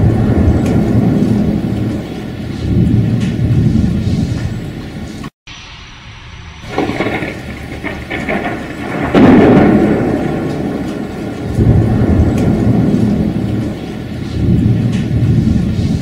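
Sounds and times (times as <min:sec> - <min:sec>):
steady rain: 0:00.0 - 0:05.3, 0:06.2 - 0:16.0
thunder cracking and rolling: 0:00.0 - 0:16.0.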